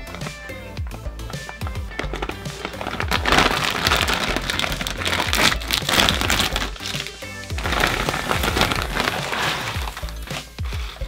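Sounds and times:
background music with bass line: 0.0 - 11.0
snack packaging crinkling: 1.2 - 11.0.

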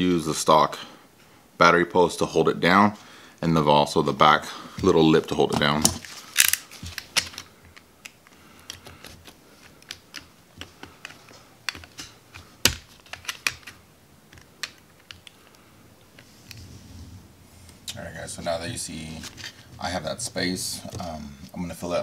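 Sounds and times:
plastic snapping: 5.5 - 15.6.

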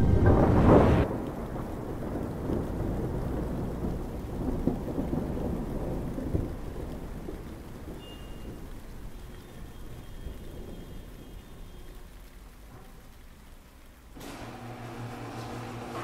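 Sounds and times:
loud thunder clap: 0.0 - 11.3
low rolling thunder: 0.0 - 12.1
steady rain: 0.0 - 16.0.

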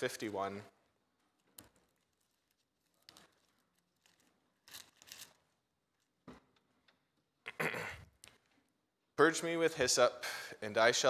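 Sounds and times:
thin pages rustling: 1.4 - 6.1.

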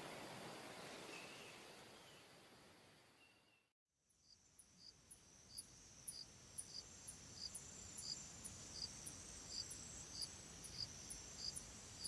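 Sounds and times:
insects chirping: 4.2 - 12.0.

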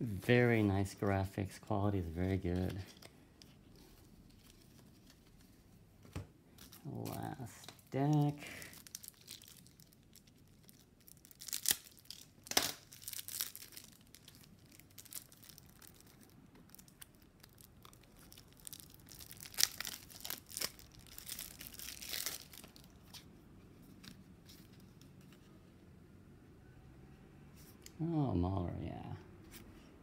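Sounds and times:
wrapper tearing and crinkling: 6.6 - 23.2.

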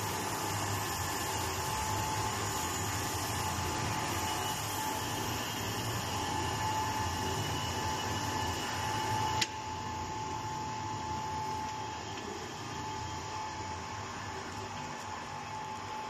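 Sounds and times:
thin high whine: 0.0 - 16.0.

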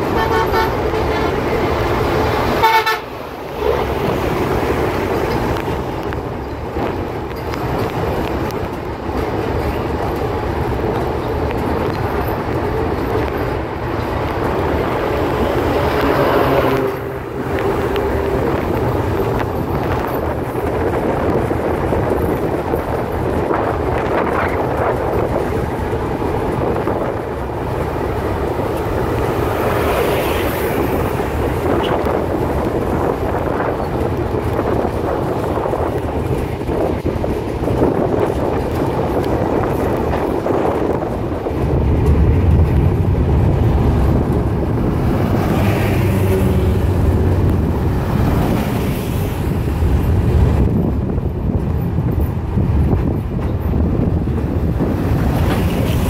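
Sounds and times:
train horn: 0.0 - 1.6, 2.5 - 3.2, 15.8 - 18.5
train rumbling: 0.0 - 56.0.

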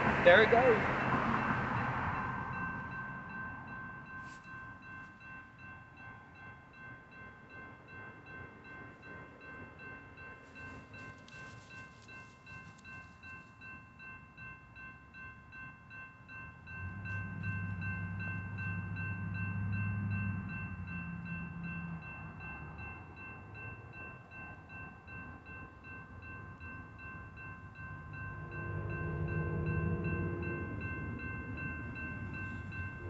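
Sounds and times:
railroad crossing bell ringing: 0.0 - 33.0.

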